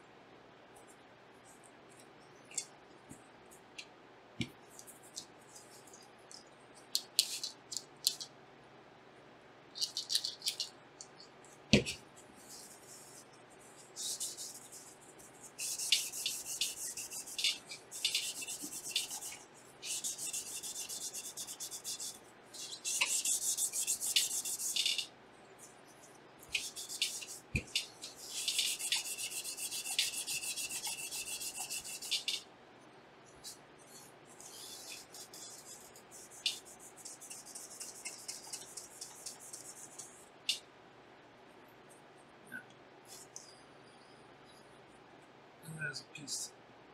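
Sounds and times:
hands scraping on metal parts: 9.8s - 11.3s, 13.8s - 25.1s, 26.5s - 32.4s, 33.9s - 40.2s.

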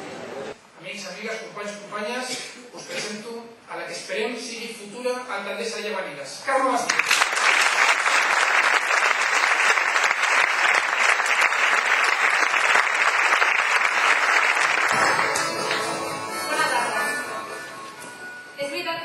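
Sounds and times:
audience applauding: 6.9s - 17.7s
music: 14.9s - 19.0s.

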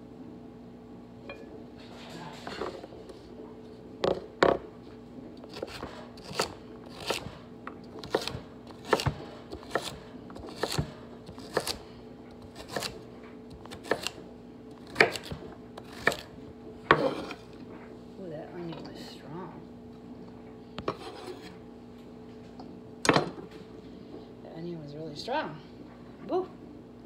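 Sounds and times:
knife chopping on wooden board: 5.5s - 7.4s, 8.0s - 11.8s, 12.4s - 14.2s, 14.8s - 16.3s.

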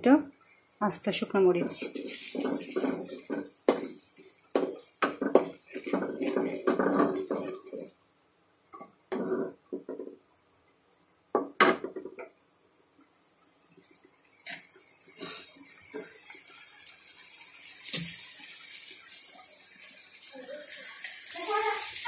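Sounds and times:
spices sizzling in oil: 0.3s - 8.0s, 13.3s - 22.0s
wooden spoon scraping a pan: 1.5s - 8.0s, 9.1s - 10.1s.

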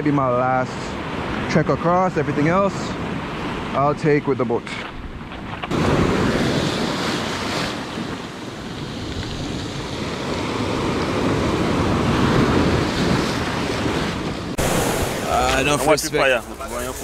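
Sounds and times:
surf breaking over rocks: 4.6s - 17.0s
wind buffeting microphone: 4.8s - 17.0s.

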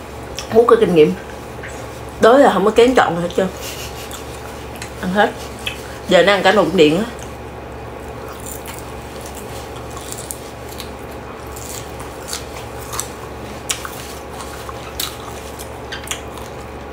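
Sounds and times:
steady low hum: 0.0s - 16.9s
person chewing leafy greens: 3.3s - 6.5s, 7.1s - 16.9s
wet mouth clicks and smacks: 5.6s - 5.8s.

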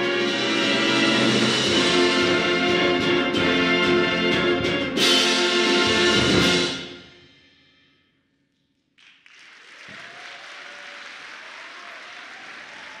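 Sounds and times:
audience applauding: 9.0s - 13.0s.

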